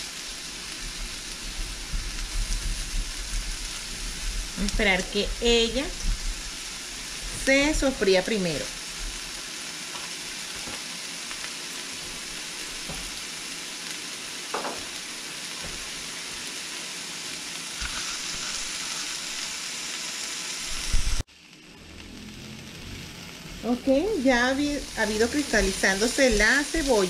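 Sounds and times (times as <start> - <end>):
onion sizzling in oil: 0.0 - 27.0
knock: 14.6 - 14.9.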